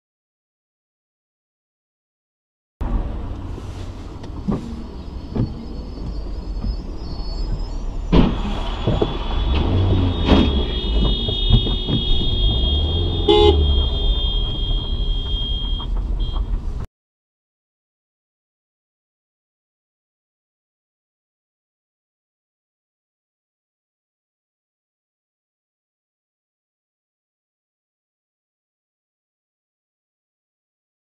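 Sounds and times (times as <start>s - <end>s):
car traffic on wet road: 2.8s - 16.9s
cars colliding: 7.4s - 16.9s
car horn blast: 8.4s - 16.6s.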